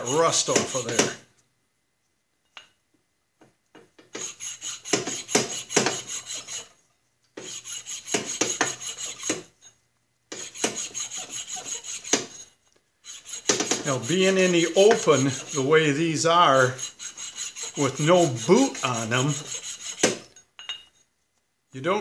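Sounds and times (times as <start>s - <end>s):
sandpaper scraping steel: 0.0s - 1.2s, 4.2s - 6.8s, 7.4s - 9.5s, 10.4s - 20.3s.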